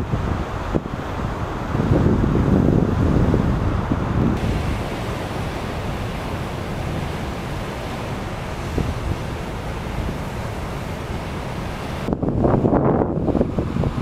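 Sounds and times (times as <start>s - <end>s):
surf breaking over rocks: 4.2s - 12.6s.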